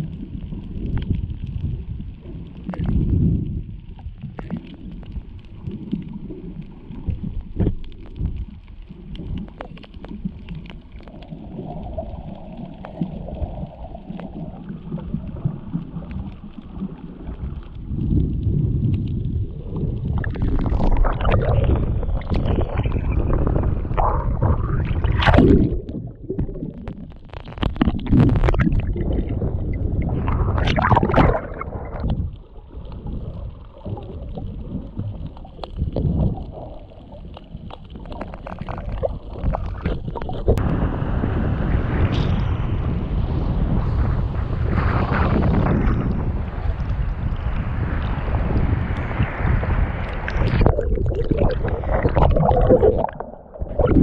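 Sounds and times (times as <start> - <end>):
water sloshing and gurgling: 0.0 - 40.7, 43.8 - 54.0
water splashing: 19.6 - 40.6, 45.0 - 54.0.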